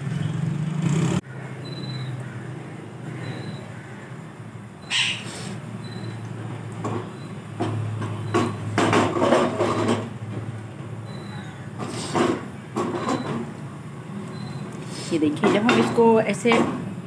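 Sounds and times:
pan scraping on stove grate: 0:08.1 - 0:10.2, 0:11.8 - 0:13.5.

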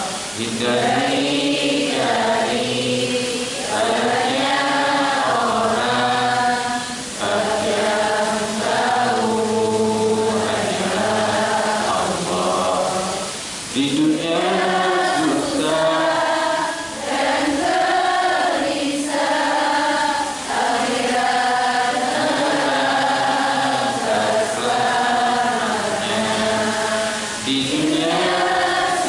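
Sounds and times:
man singing into microphone: 0:00.0 - 0:16.4, 0:22.4 - 0:29.0.

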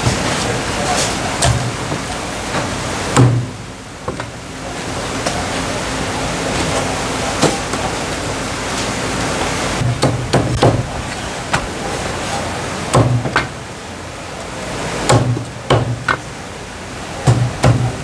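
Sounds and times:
cleaver chopping on wooden block: 0:15.1 - 0:16.2.

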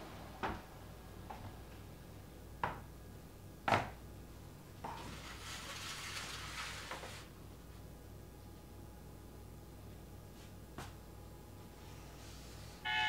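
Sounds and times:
soft rustling scrape: 0:04.9 - 0:07.3, 0:11.7 - 0:12.8.

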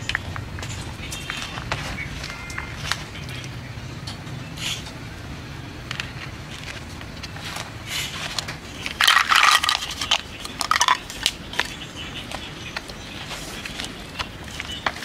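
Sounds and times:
loud rustling: 0:05.9 - 0:15.0
ice cubes dropping: 0:08.9 - 0:11.4.

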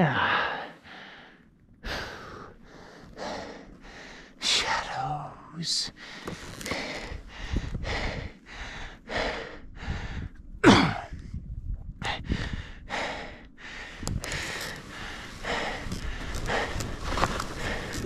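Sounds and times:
skis scraping on snow: 0:14.4 - 0:18.0.

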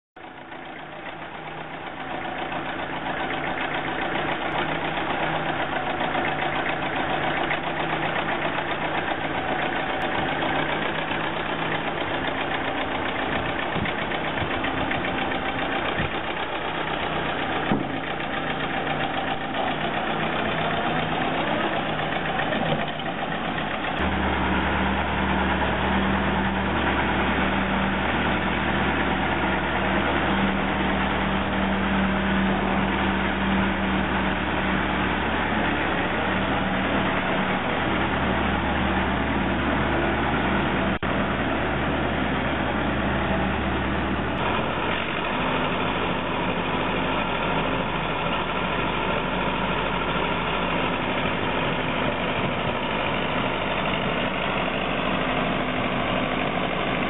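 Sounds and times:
tractor engine running: 0:00.2 - 0:57.0
clunks: 0:02.4 - 0:27.6.

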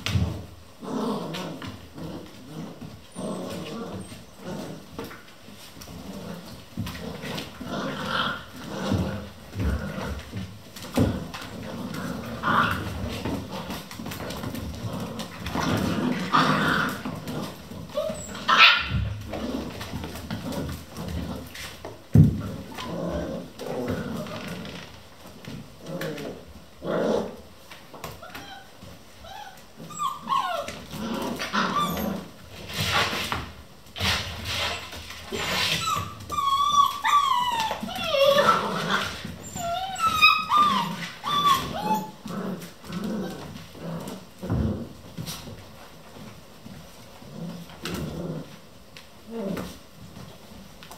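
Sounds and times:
puppies scuffling: 0:00.0 - 0:50.9
puppies yelping and barking: 0:12.1 - 0:19.9, 0:28.2 - 0:32.4, 0:34.7 - 0:42.3.

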